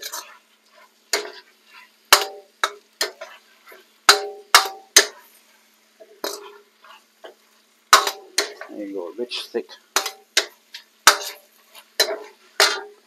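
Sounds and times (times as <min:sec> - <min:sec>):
ladle clanking against steel wok: 0:01.1 - 0:01.5, 0:02.1 - 0:03.4, 0:04.1 - 0:05.2, 0:06.0 - 0:06.6, 0:07.2 - 0:08.7, 0:10.0 - 0:11.4, 0:12.0 - 0:13.0.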